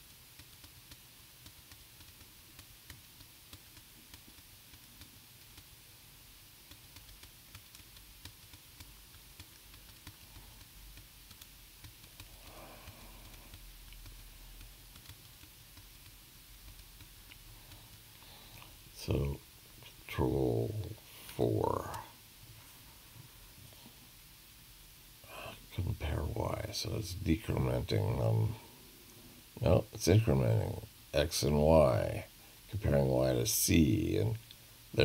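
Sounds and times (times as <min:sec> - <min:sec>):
low electrical hum: 0:00.0 - 0:35.0
keyboard keys tapping: 0:06.6 - 0:18.0.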